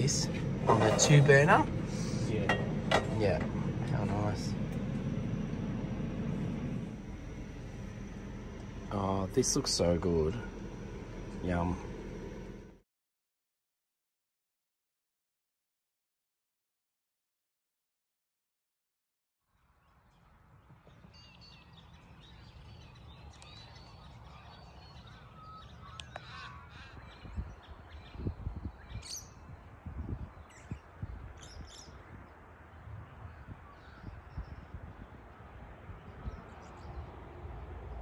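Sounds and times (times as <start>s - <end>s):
small birds chirping: 19.8s - 37.2s
wind rumble on microphone: 20.2s - 38.0s
crows cawing: 25.0s - 27.1s.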